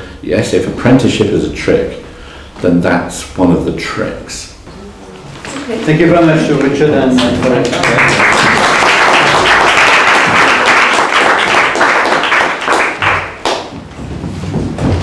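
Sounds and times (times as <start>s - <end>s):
audience applauding: 7.2s - 13.7s.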